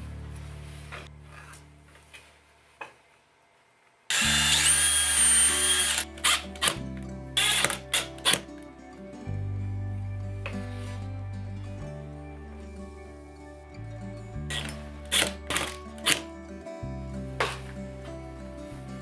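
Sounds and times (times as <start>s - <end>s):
background music with bass: 0.0s - 2.5s, 4.1s - 19.0s
power tool motor whine: 4.1s - 6.4s.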